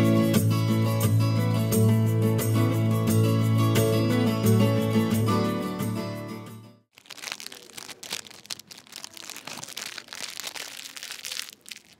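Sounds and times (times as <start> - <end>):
cellophane crinkling: 6.9 - 11.9.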